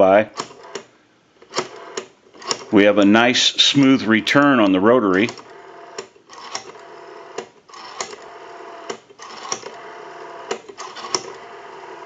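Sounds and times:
rotary telephone dial clicking: 0.4 - 2.7, 5.2 - 12.0.

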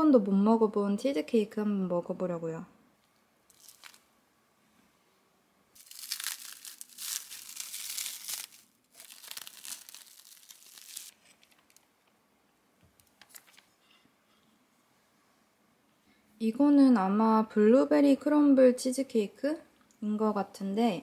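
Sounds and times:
faint plastic crackles: 3.0 - 4.1, 5.8 - 12.2, 12.9 - 13.8
plastic wrap crinkling: 3.5 - 4.1, 5.8 - 11.9.

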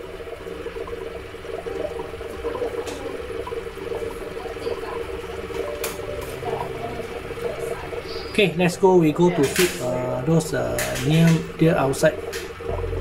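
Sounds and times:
low hum: 12.6 - 13.0.

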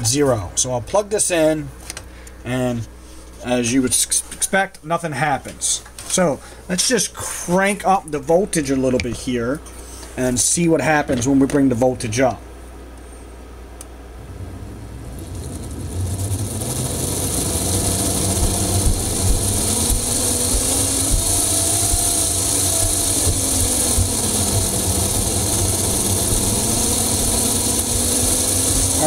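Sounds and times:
electric motor whirring: 14.6 - 29.0.

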